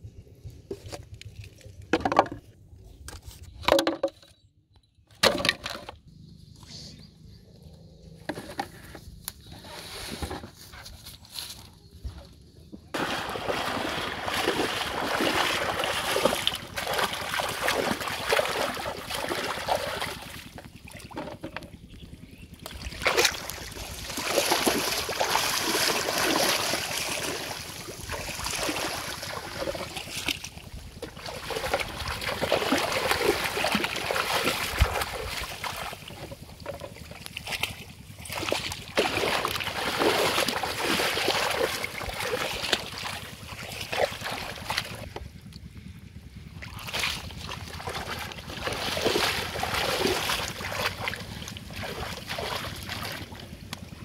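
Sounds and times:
water splashing and sloshing: 12.9s - 21.8s, 22.5s - 45.3s, 46.6s - 54.0s.

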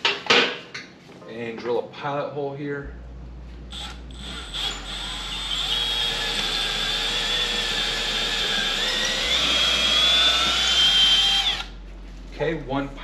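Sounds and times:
drill clicks: 3.7s - 11.7s
cordless drill whining: 3.7s - 11.8s.

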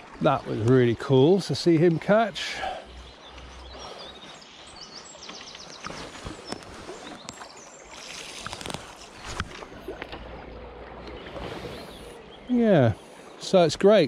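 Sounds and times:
river water flowing and lapping: 0.0s - 14.0s.

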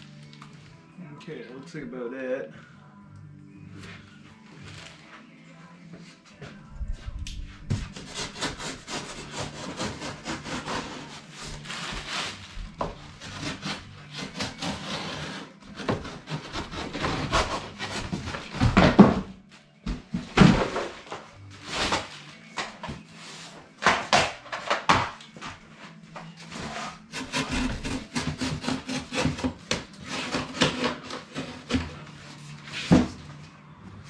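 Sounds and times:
packaging rubbing and scraping: 7.9s - 18.8s.

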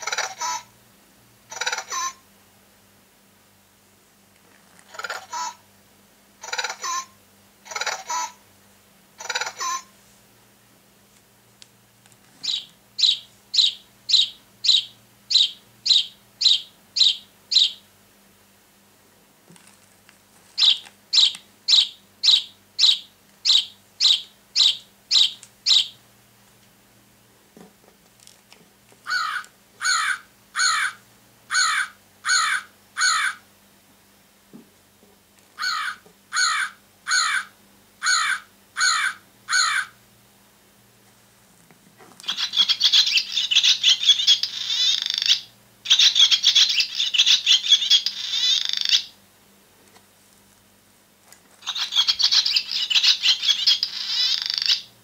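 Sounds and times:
toy sound box sparrow chirps: 12.4s - 17.8s, 20.6s - 26.0s, 42.2s - 49.1s, 51.6s - 54.9s
recorded crow cawing: 29.0s - 33.5s, 35.6s - 40.0s.

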